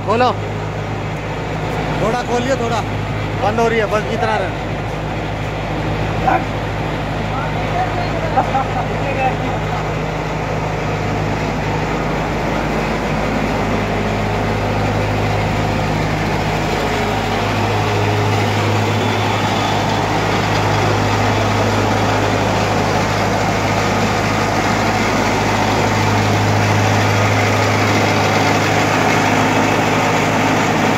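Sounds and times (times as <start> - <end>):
washing machine humming: 0.0 - 30.9.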